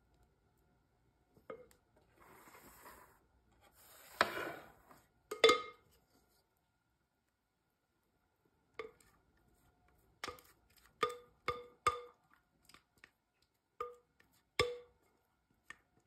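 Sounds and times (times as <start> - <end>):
spatula scraping bowl: 2.1 - 5.1.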